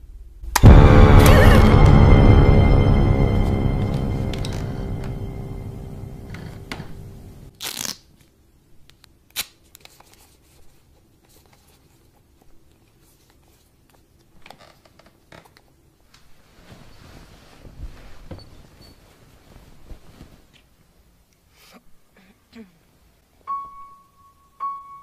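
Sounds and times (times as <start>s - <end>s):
scary music: 0.5s - 7.5s.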